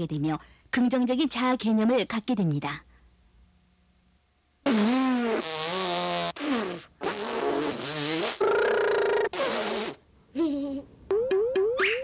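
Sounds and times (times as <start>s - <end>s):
comic fart sound effects: 4.6s - 10.0s.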